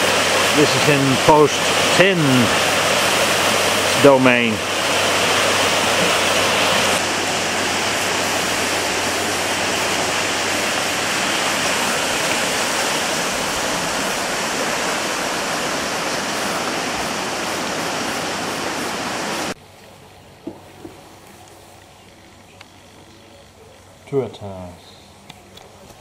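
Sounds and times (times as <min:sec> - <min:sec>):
stream water rushing in a channel: 0:00.0 - 0:19.6.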